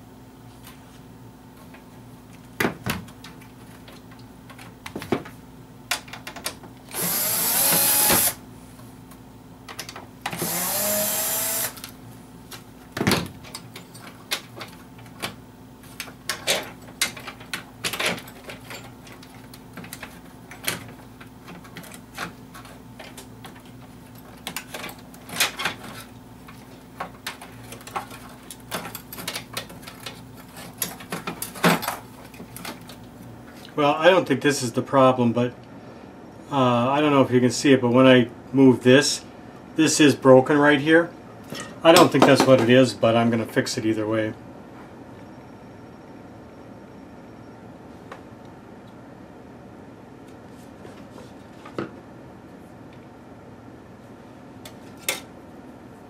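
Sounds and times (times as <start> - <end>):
electric drill-driver: 6.9 - 8.4, 10.3 - 11.9.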